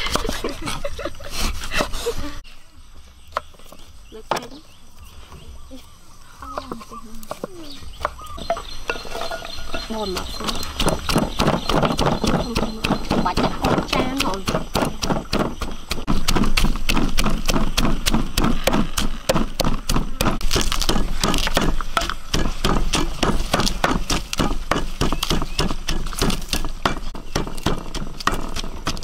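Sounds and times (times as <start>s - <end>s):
cleaver chopping meat on board: 10.2s - 29.0s.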